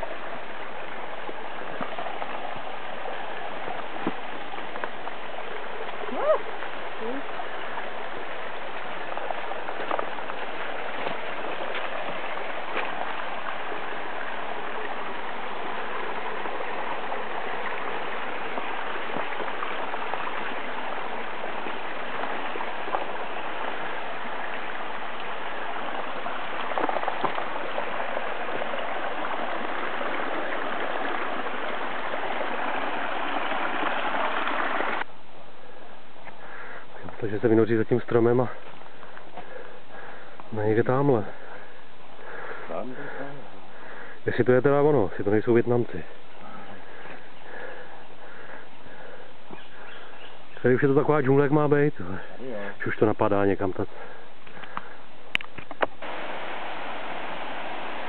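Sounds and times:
stream water rushing: 0.0s - 58.0s
faint footsteps: 1.2s - 15.0s, 17.5s - 31.4s, 38.5s - 40.6s.

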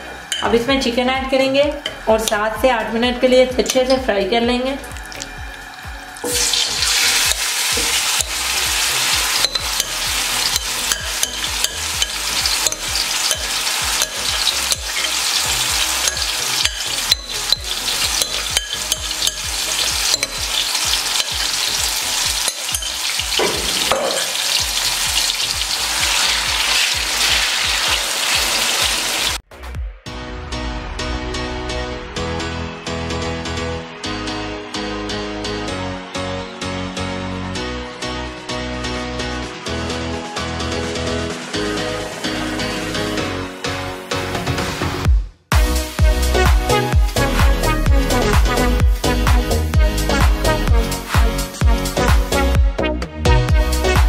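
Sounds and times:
chicken sizzling in oil: 5.0s - 29.4s
spoon scraping pan: 6.3s - 25.4s.

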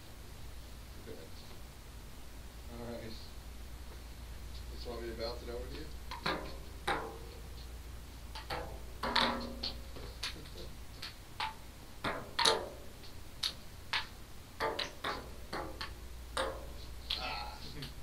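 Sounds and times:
table tennis ball clicking: 11.0s - 12.8s.

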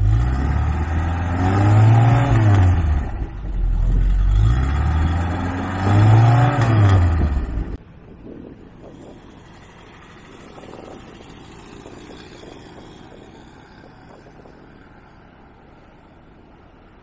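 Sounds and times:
car engine driving away: 0.0s - 7.8s, 8.6s - 16.4s.

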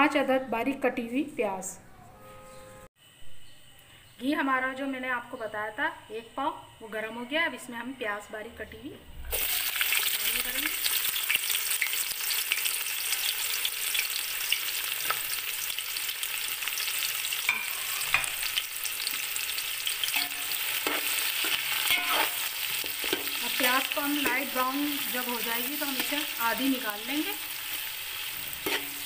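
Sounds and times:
crackles of frying: 9.3s - 29.0s
onions sizzling in oil: 9.3s - 29.0s.

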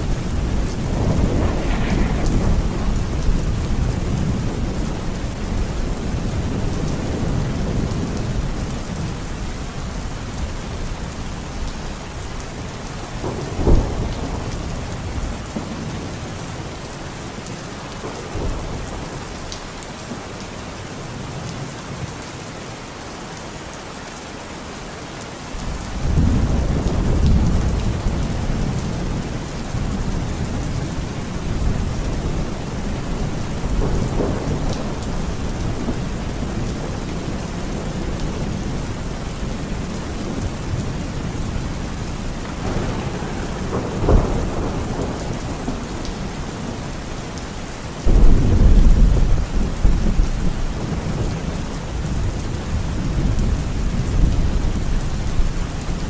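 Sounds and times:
thunder rumbling and clapping: 0.0s - 9.1s, 25.9s - 38.8s, 42.4s - 46.8s, 48.0s - 55.5s
heavy rain pouring: 0.0s - 56.0s.

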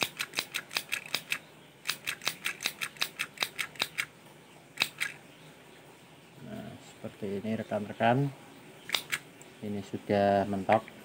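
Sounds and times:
mini sewing machine clicking: 0.0s - 4.1s, 4.8s - 5.2s.

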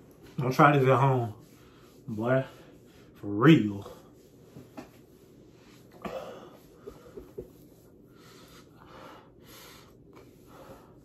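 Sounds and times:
hand rubbing skin and shirt: 0.0s - 8.8s
faint breathing: 5.5s - 11.0s.

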